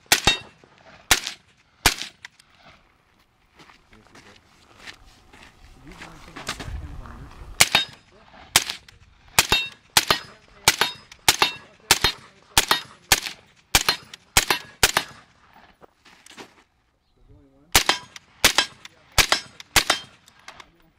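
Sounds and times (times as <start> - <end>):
suppressed rifle shots: 0.1 - 0.5, 1.1 - 2.3, 7.6 - 15.3, 17.7 - 20.7.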